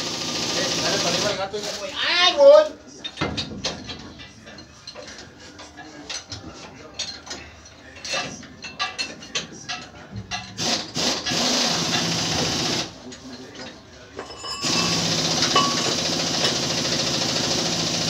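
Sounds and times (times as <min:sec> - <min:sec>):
light metallic clinks: 0:13.2 - 0:16.0
machine running: 0:14.6 - 0:18.0.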